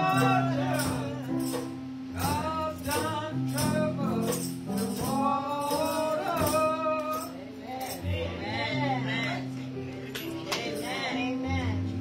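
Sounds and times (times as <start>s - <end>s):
band accompaniment: 0.0s - 7.4s
tambourine shaking: 0.0s - 8.0s
woman singing gospel: 0.0s - 12.0s.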